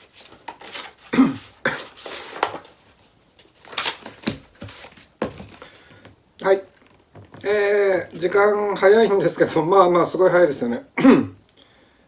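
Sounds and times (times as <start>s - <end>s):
book pages flipping: 0.0s - 5.7s.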